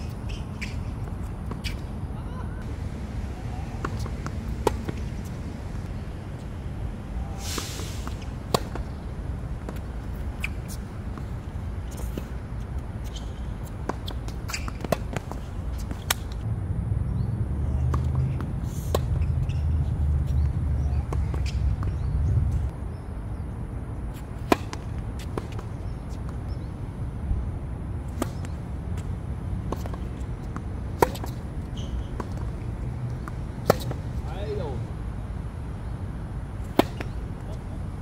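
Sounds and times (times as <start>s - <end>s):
racket strikes and ball bounces: 0.0s - 2.0s, 3.4s - 6.5s, 7.6s - 16.4s, 17.9s - 22.2s, 24.2s - 26.6s, 28.0s - 34.8s, 36.6s - 37.7s.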